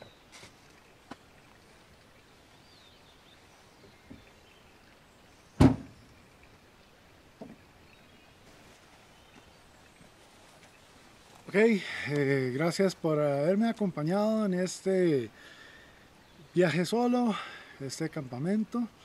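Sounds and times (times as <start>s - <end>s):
car hatch slamming shut: 5.6s - 6.0s.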